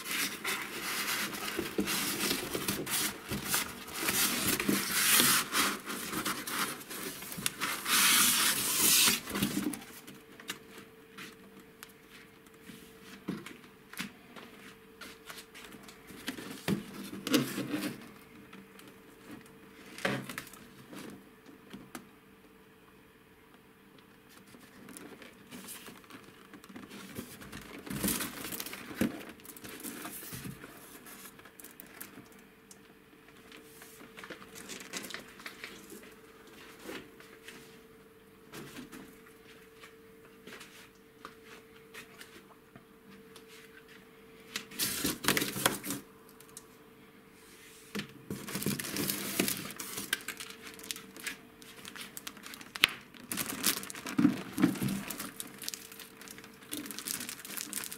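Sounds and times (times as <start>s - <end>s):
cardboard rustling: 0.0s - 10.2s, 24.4s - 32.2s, 48.3s - 57.9s
plastic wrap crinkling: 0.0s - 12.4s, 24.3s - 32.5s, 33.3s - 37.1s, 44.6s - 46.7s, 48.3s - 57.9s
faint steady hum: 0.0s - 57.9s.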